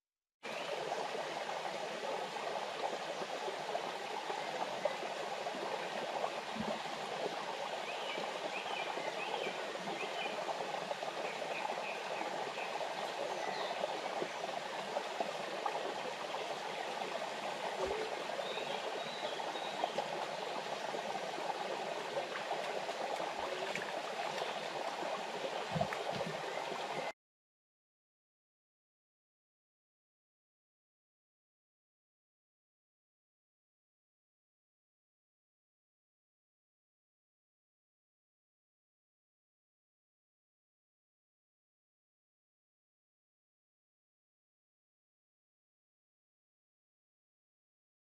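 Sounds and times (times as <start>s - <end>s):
waterfall splashing over rocks: 10.4s - 27.1s.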